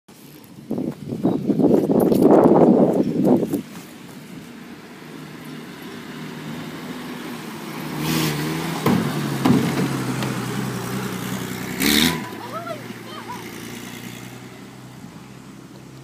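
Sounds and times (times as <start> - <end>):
truck driving past: 3.8 - 16.0
sharp knocks: 8.8 - 10.4.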